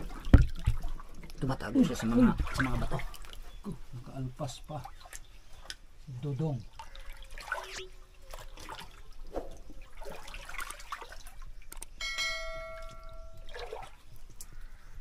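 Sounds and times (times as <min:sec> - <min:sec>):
hands splashing in water: 0:00.0 - 0:03.4, 0:12.9 - 0:14.6
ringing bell-like tone: 0:12.0 - 0:13.7.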